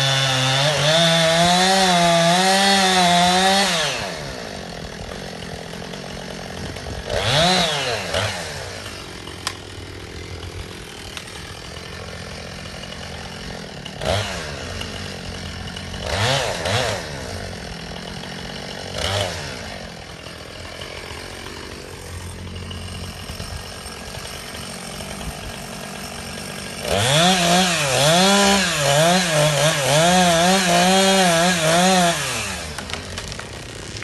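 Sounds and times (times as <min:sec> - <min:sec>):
chainsaw cutting wood: 0:00.0 - 0:34.0
chainsaw idling and revving: 0:00.0 - 0:34.0.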